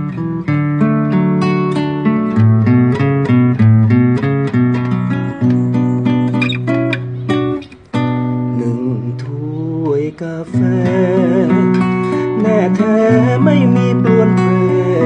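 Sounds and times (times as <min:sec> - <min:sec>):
fingerpicked acoustic guitar: 0:00.0 - 0:15.0
man singing: 0:08.5 - 0:15.0.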